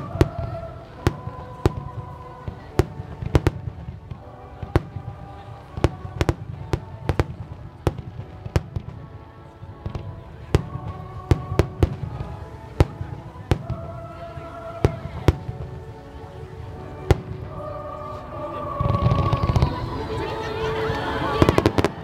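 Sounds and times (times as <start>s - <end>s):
fireworks bangs and cracks: 5.7s - 9.1s.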